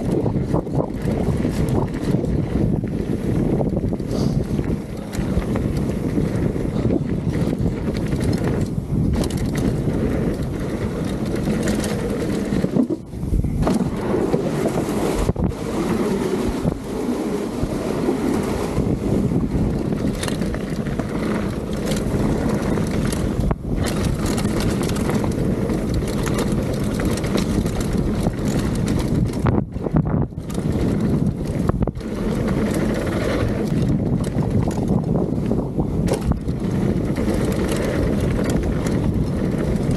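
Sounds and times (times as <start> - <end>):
bike tyres rattling on rough ground: 0.0 - 39.9
wind rushing over microphone: 0.0 - 39.9
bike knocking over bumps: 13.6 - 14.7, 19.6 - 39.9.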